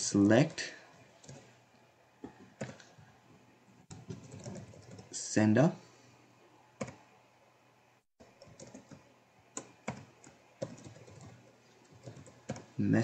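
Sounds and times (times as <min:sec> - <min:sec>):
keyboard keystrokes: 0:03.9 - 0:05.0, 0:06.8 - 0:07.0, 0:09.6 - 0:12.7.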